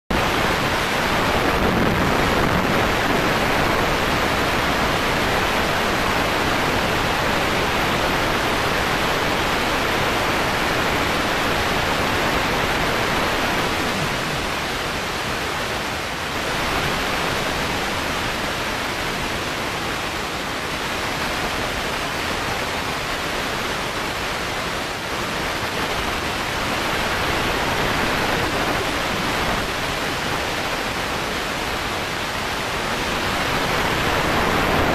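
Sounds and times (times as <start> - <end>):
race car cabin noise: 12.1 - 15.5.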